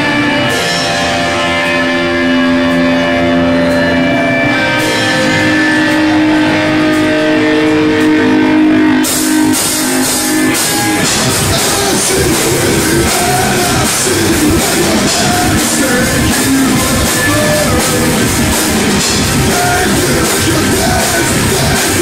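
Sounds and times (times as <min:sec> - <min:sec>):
drum kit: 0:00.0 - 0:22.0
electric guitars: 0:00.0 - 0:22.0
person singing into microphone: 0:11.0 - 0:22.0.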